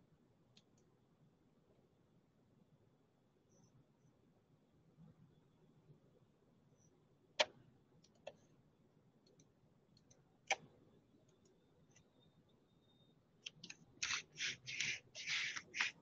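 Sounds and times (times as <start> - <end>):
computer mouse clicks: 13.4 - 16.0.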